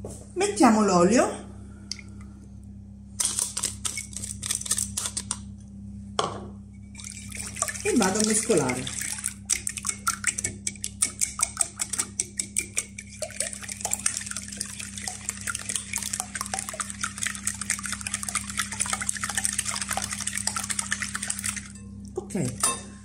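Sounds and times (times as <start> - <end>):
liquid sloshing: 6.9 - 22.8
whisk clicking against glass bowl: 9.4 - 21.8.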